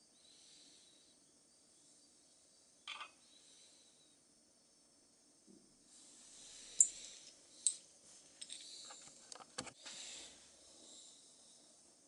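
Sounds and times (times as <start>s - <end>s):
faint rubbing hiss: 5.9s - 11.8s.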